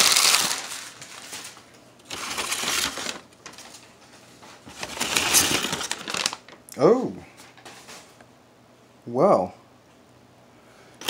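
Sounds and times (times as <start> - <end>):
newspaper rustling and crinkling: 0.0 - 6.6.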